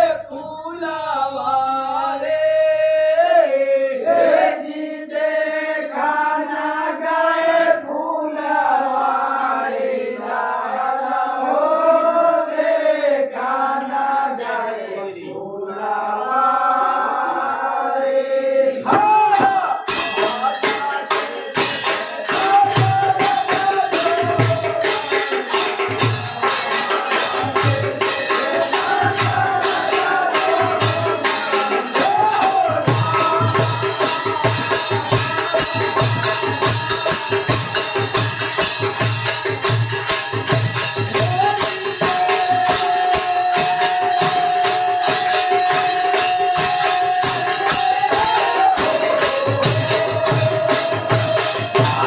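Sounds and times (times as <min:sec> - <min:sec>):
jingling percussion: 0:00.0 - 0:17.0, 0:18.8 - 0:52.0
men singing together: 0:00.0 - 0:52.0
hand drums fast rhythm: 0:18.9 - 0:52.0.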